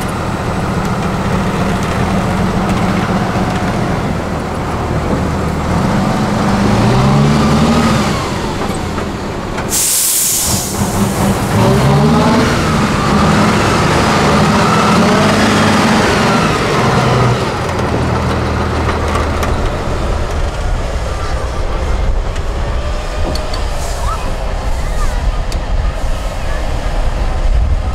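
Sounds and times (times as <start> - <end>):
diesel truck engine revving: 0.0 - 27.9
loud hiss of air: 9.7 - 11.6, 23.6 - 25.3, 26.0 - 27.1.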